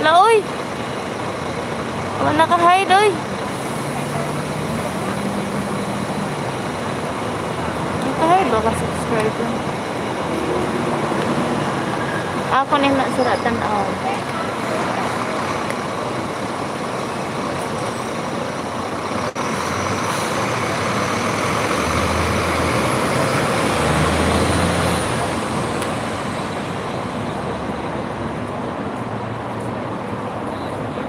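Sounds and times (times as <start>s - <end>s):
heavy vehicle rumbling past: 0.0s - 30.9s
road traffic noise: 0.0s - 31.0s.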